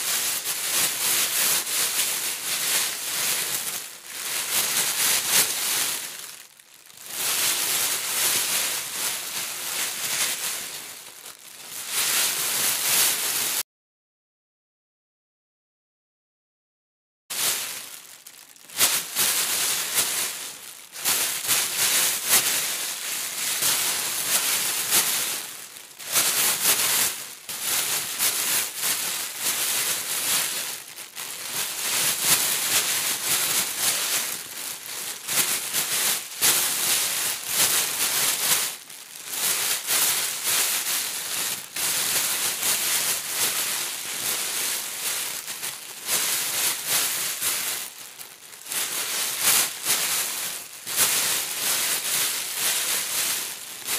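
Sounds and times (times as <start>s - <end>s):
hands rummaging in foam beads: 1.9s - 13.6s, 17.3s - 26.8s, 47.4s - 49.6s.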